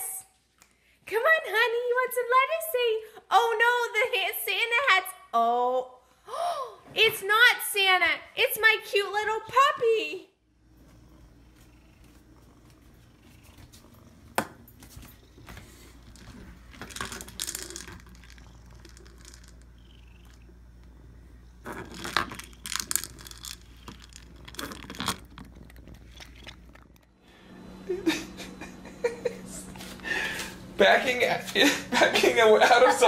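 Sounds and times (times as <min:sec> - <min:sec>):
steady low hum: 0:10.3 - 0:33.0.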